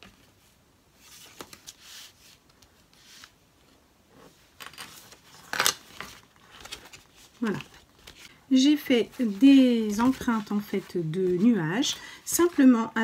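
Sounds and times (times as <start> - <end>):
paper card rustling: 4.6 - 12.7.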